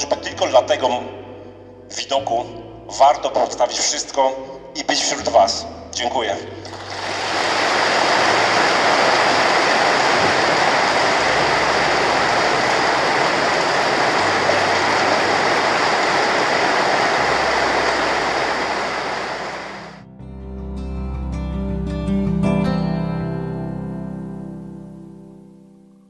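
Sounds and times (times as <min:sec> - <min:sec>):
crowd applauding: 0:06.7 - 0:20.0.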